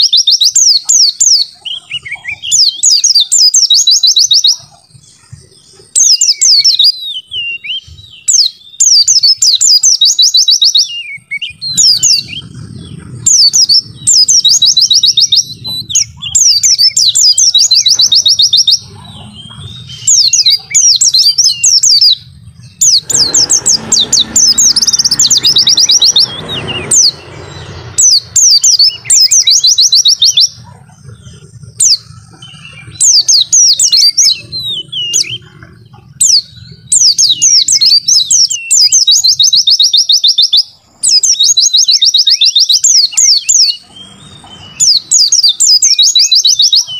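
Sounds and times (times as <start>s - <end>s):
bird chattering trills: 0.0s - 46.9s
low hum: 11.5s - 37.2s
brief rushing noise: 22.8s - 29.9s.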